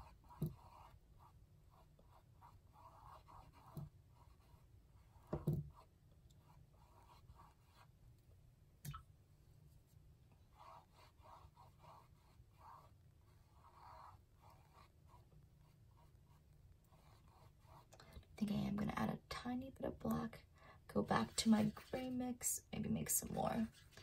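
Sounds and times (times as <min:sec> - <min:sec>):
paintbrush strokes on canvas: 0:09.4 - 0:17.9, 0:21.2 - 0:22.4, 0:23.0 - 0:24.0.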